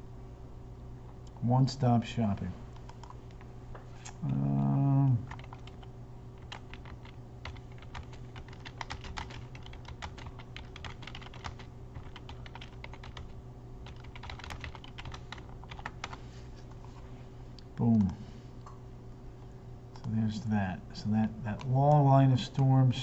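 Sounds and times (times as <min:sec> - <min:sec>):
typing on a computer keyboard: 0:05.3 - 0:16.2.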